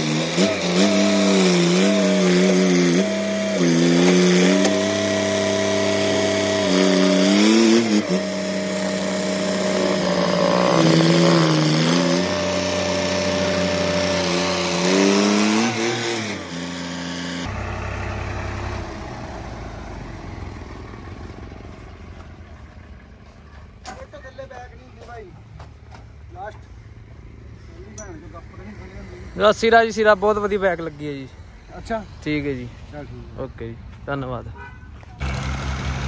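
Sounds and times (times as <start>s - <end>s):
tractor diesel engine revving: 0.0s - 23.1s, 35.2s - 36.0s.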